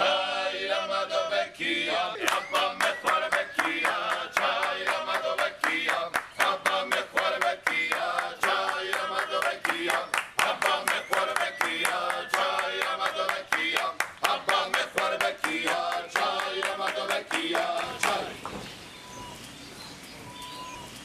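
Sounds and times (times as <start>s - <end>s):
men's group singing folk song: 0.0s - 18.6s
hand-clapping beat: 2.2s - 18.4s.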